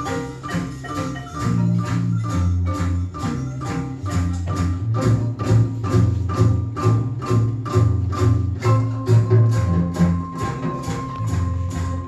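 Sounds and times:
deep bass line: 0:00.0 - 0:12.0
sharp percussive strikes: 0:00.0 - 0:12.0.

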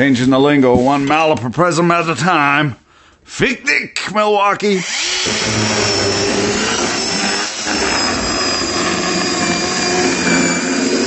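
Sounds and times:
power saw cutting cardboard: 0:04.8 - 0:11.0.

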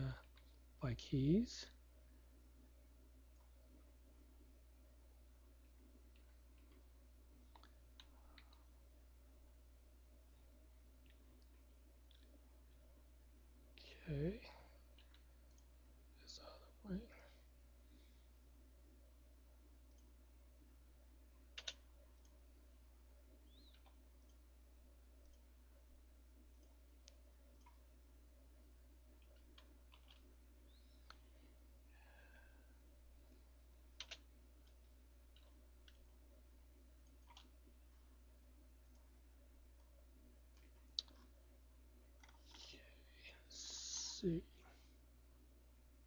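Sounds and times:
low steady hum: 0:00.0 - 0:46.0
computer mouse clicks: 0:06.1 - 0:08.8, 0:14.9 - 0:15.7, 0:19.8 - 0:20.1, 0:21.5 - 0:22.4, 0:23.5 - 0:24.4, 0:25.2 - 0:25.5, 0:26.5 - 0:27.8, 0:29.2 - 0:31.2, 0:34.0 - 0:36.2, 0:37.0 - 0:37.6, 0:38.8 - 0:39.1, 0:39.8 - 0:41.4, 0:42.2 - 0:42.7.

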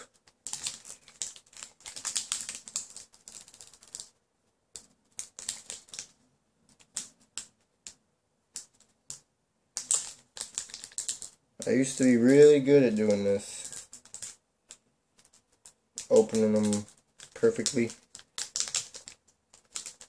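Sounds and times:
foil wrapper crinkling: 0:09.8 - 0:14.3.

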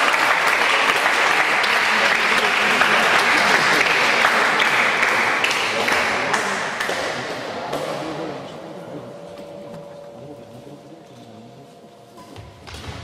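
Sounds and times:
spectators applauding: 0:00.0 - 0:07.9.

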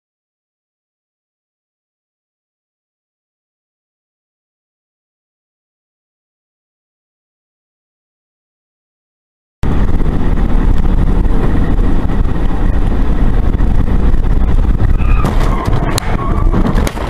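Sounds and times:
car road and engine noise: 0:09.6 - 0:17.0.

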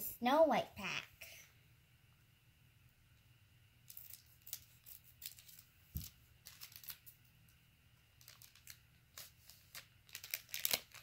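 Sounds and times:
wrapper crinkling: 0:03.9 - 0:07.3, 0:08.1 - 0:11.0
scissors snipping foil wrapper: 0:06.5 - 0:07.2, 0:08.2 - 0:11.0.

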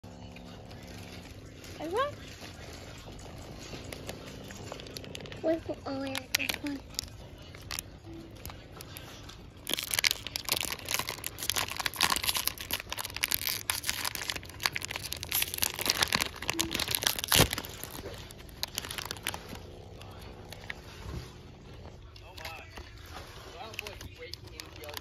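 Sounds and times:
foil packet crinkling and tearing: 0:03.8 - 0:20.8, 0:22.2 - 0:25.0.

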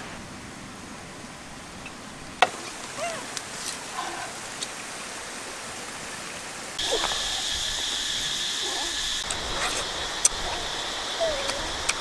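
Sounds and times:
chirring insect chorus: 0:06.8 - 0:12.0.

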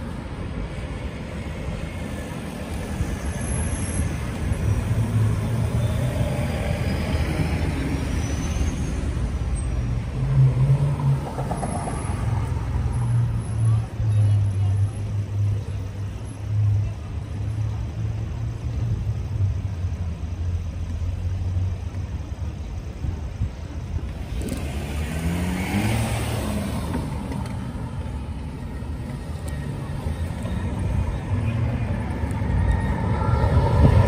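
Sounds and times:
low traffic rumble: 0:00.0 - 0:34.0
car driving past: 0:24.2 - 0:34.0.

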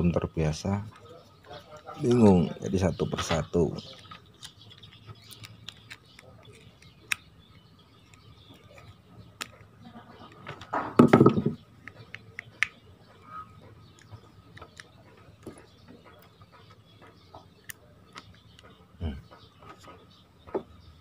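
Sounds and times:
dull thump: 0:11.0 - 0:11.6.

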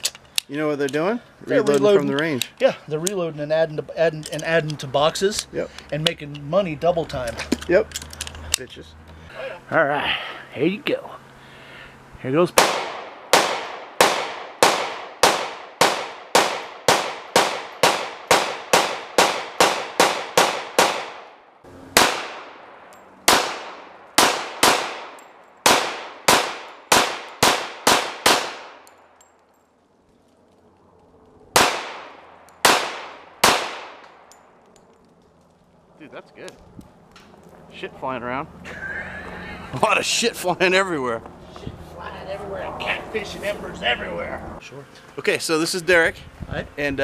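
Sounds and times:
pistol shots: 0:12.6 - 0:28.9, 0:31.5 - 0:34.3.

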